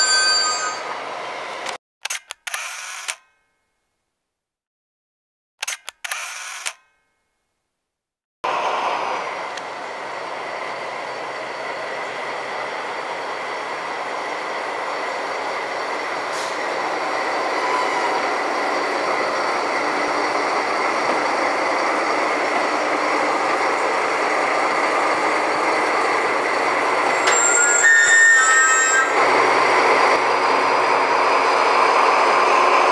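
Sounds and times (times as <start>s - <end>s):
diesel locomotive engine droning: 0.0s - 1.8s, 8.5s - 32.9s
short high squeal: 17.6s - 18.3s, 27.1s - 29.2s.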